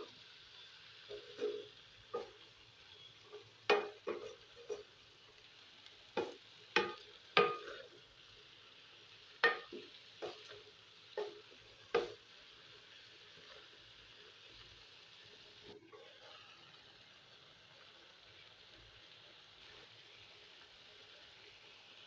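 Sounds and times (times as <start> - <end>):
faint frying sizzle: 0.0 - 22.0
wooden spatula knocking on pan: 1.1 - 2.4, 3.7 - 4.8, 6.2 - 7.8, 9.4 - 10.6, 11.2 - 12.2.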